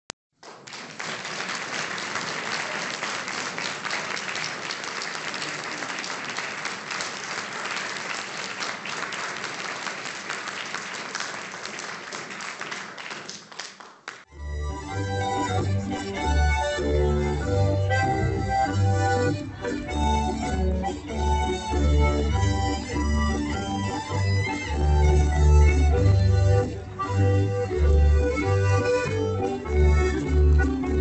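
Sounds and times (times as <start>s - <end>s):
audience applauding: 0.4s - 14.3s.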